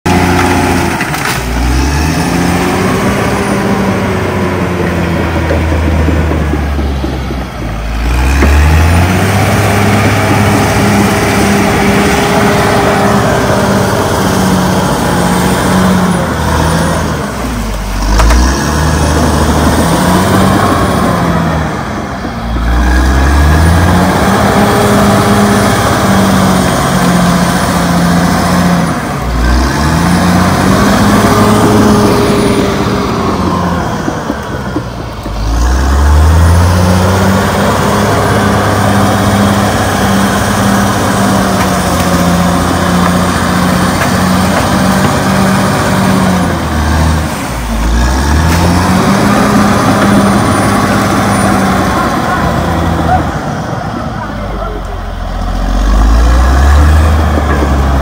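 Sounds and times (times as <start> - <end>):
bulldozer diesel engine running: 0.0 - 58.0.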